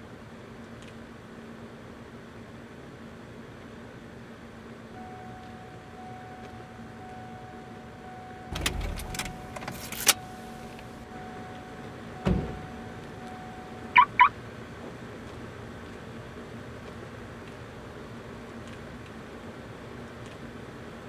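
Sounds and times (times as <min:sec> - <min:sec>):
faint steady whine: 0:04.3 - 0:16.6
short rising chirps: 0:08.3 - 0:14.3
car key rattling in ignition: 0:08.5 - 0:11.0
low thud: 0:12.2 - 0:12.8.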